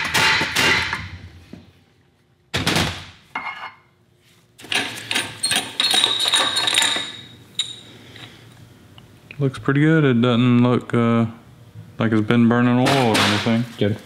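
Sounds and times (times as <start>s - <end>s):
metal tools clanking: 4.6s - 7.9s.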